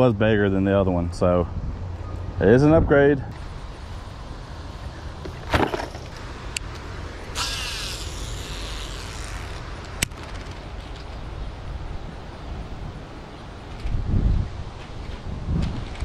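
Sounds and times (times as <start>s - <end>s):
wind rumble on microphone: 0.0s - 4.8s, 10.0s - 16.0s
fishing line hissing off reel: 7.3s - 10.6s.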